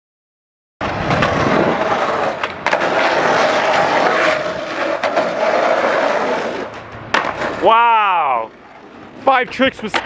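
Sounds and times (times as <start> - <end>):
skateboard wheels rolling on asphalt: 0.8 - 10.0.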